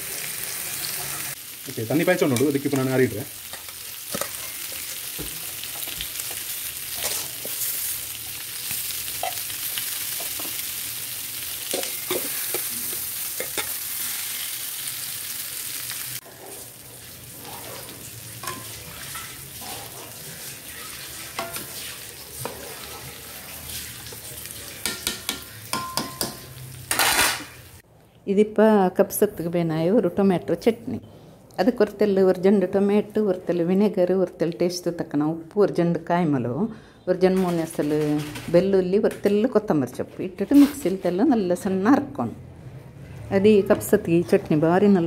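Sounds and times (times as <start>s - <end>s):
spoon knocking against pot: 24.8s - 26.5s.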